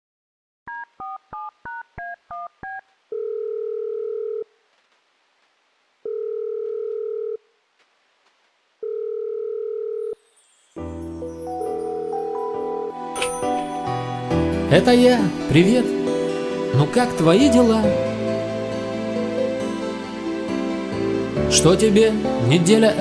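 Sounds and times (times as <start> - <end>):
telephone ringing tone: 0.7 - 4.5, 6.0 - 7.4, 8.8 - 10.2, 11.8 - 13.9.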